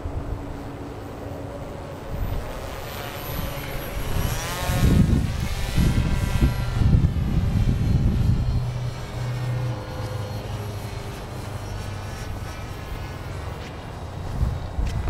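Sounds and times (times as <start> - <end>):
model plane motor whine: 0.0 - 15.0
wind buffeting microphone: 2.0 - 9.8, 14.0 - 15.0.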